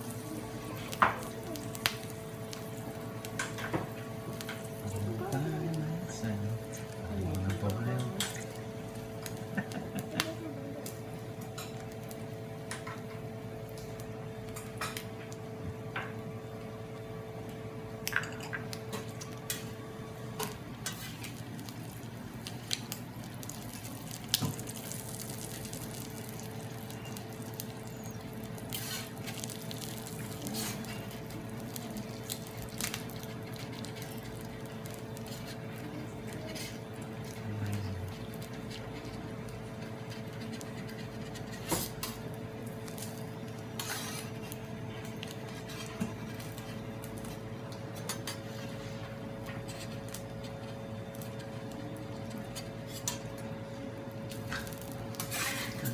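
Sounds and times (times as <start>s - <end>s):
steady hum: 0.0s - 55.9s
shrimp sizzling in oil: 18.0s - 37.4s, 41.6s - 49.0s, 54.2s - 55.9s.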